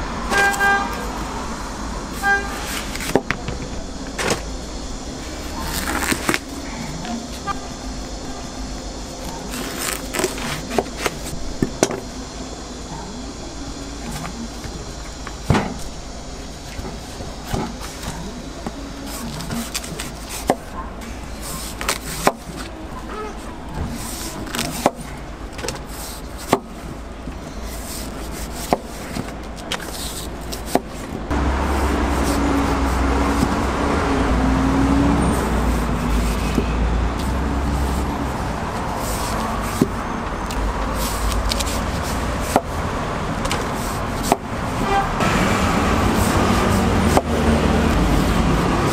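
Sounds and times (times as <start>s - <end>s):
low humming rumble: 0.0s - 48.9s
knife paring watermelon rind: 5.4s - 7.5s, 9.2s - 11.4s, 35.3s - 42.8s.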